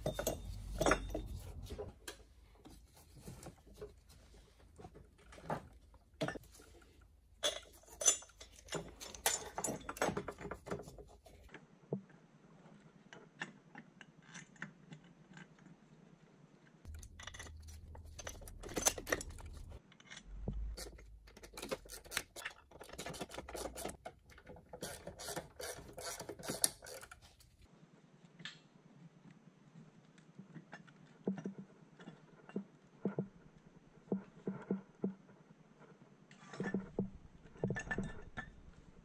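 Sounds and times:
metal clinking and clattering: 0:00.0 - 0:02.2, 0:07.4 - 0:11.2, 0:16.9 - 0:19.8, 0:36.4 - 0:39.0.

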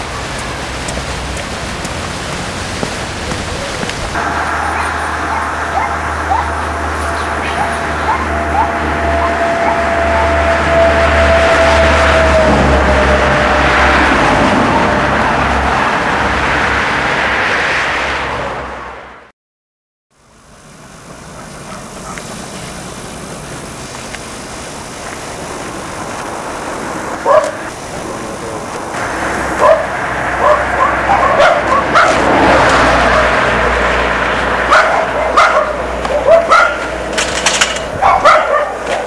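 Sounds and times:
dog barking: 0:04.6 - 0:06.6, 0:07.4 - 0:10.3, 0:21.3 - 0:22.3, 0:27.2 - 0:27.6, 0:29.6 - 0:32.2, 0:33.0 - 0:33.4, 0:34.7 - 0:36.9, 0:38.0 - 0:39.0.

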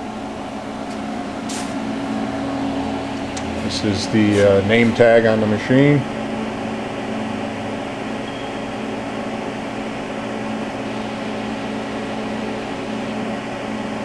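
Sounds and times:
cooling fan whirring: 0:00.0 - 0:14.0
machine hum: 0:00.0 - 0:14.0.

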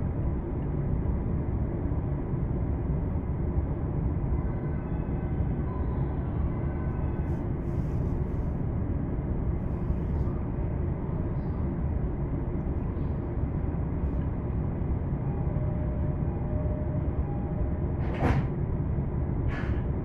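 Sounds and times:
train carriage rumble: 0:00.0 - 0:20.0.

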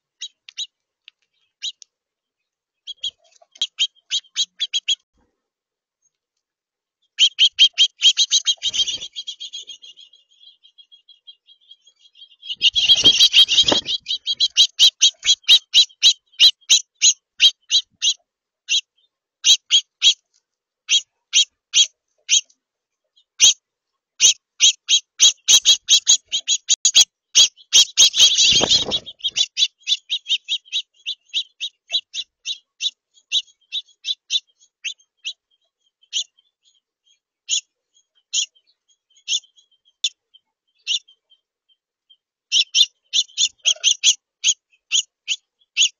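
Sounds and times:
songbird chip calls: 0:00.0 - 0:00.7, 0:02.8 - 0:05.1, 0:07.0 - 0:20.2, 0:20.9 - 0:22.5, 0:23.2 - 0:23.6, 0:24.2 - 0:45.9
wings beating: 0:08.4 - 0:10.0, 0:12.5 - 0:15.5, 0:28.0 - 0:29.6.

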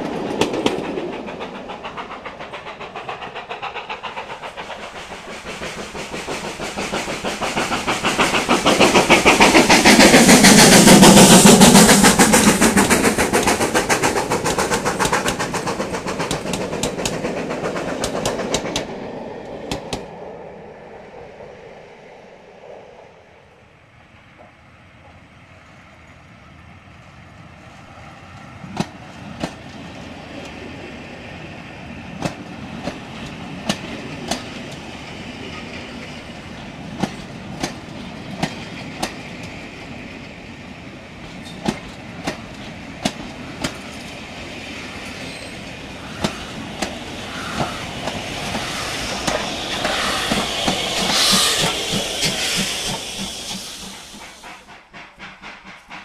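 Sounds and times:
wheels clicking over rail joints: 0:00.0 - 0:20.1, 0:32.2 - 0:40.4, 0:41.2 - 0:56.0
steam locomotive passing: 0:00.0 - 0:56.0.

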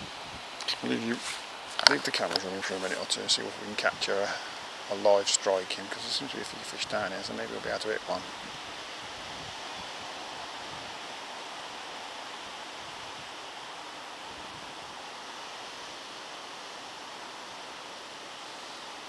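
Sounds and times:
wind blowing through grass: 0:00.0 - 0:19.0.

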